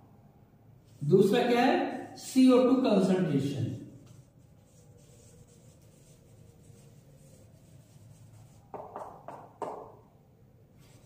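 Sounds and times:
marker rubbing on whiteboard: 3.9 - 10.0, 10.8 - 11.0.

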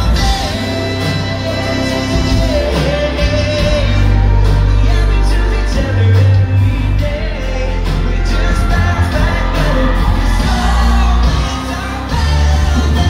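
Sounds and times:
drums: 0.0 - 13.0
electric guitars: 0.0 - 13.0
heavy bass: 0.0 - 13.0
male singer: 0.0 - 13.0.

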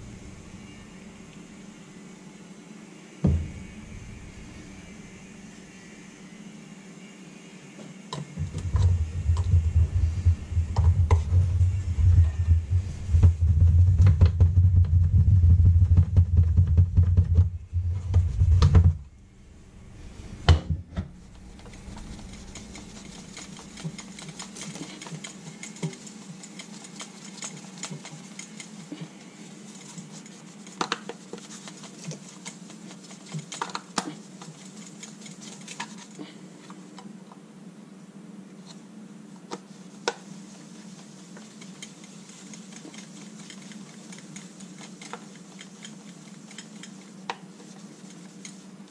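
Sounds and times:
loud low hum: 0.0 - 2.4, 3.1 - 7.2, 8.3 - 23.3
cloth rubbing on plastic: 39.6 - 48.9.

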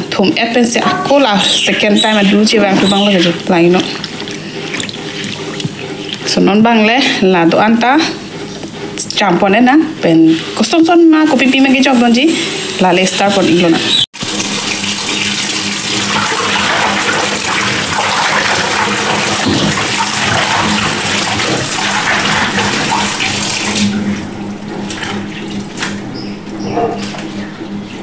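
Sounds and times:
splashes and drips: 2.8 - 6.3, 14.2 - 24.0.

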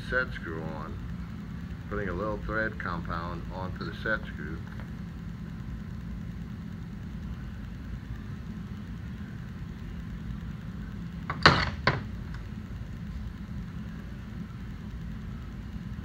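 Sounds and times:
steady low hum: 0.0 - 16.0
metal clunks on workbench: 11.3 - 12.1.

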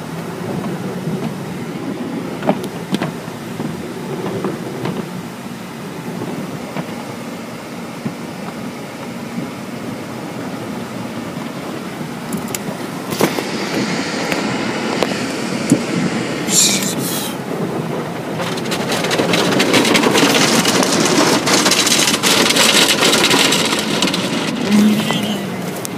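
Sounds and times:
steady rumble: 0.0 - 25.9
spraying water hiss: 11.0 - 17.8.

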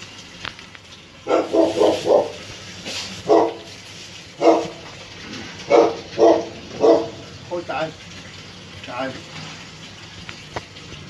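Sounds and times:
dog barking: 1.2 - 2.4, 3.2 - 3.7, 4.4 - 4.8, 5.6 - 7.2.

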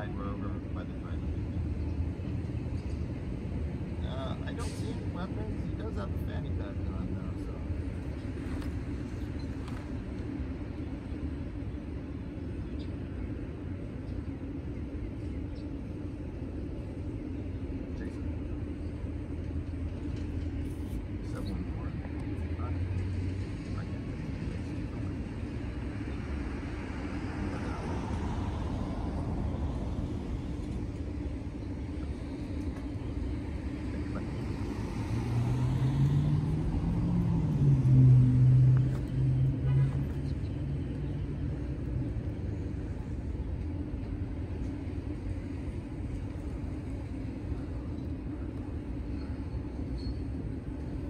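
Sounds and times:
traffic rumble: 0.0 - 51.0
car passing: 21.6 - 43.8.

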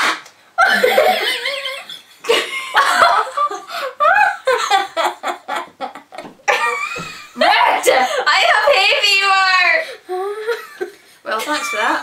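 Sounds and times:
girls laughing and giggling: 0.6 - 12.0.

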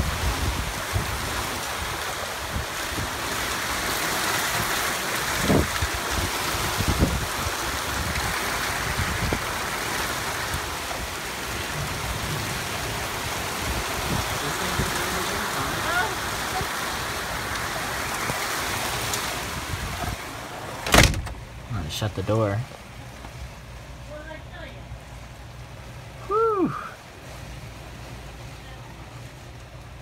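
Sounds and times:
wind gusts on microphone: 0.0 - 3.8, 4.4 - 21.7
heavy rain: 0.0 - 30.0.

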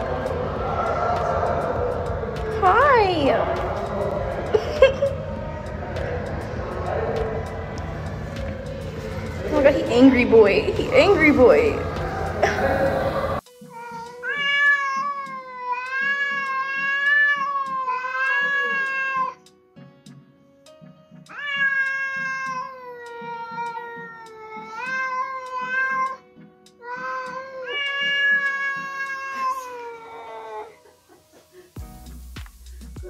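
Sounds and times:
cat yowling: 11.8 - 19.4, 21.3 - 26.2, 26.8 - 31.0.

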